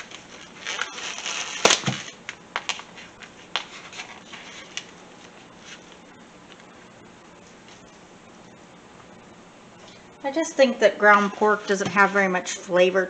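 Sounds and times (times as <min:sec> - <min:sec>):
plastic packaging crinkling: 0:00.0 - 0:06.7.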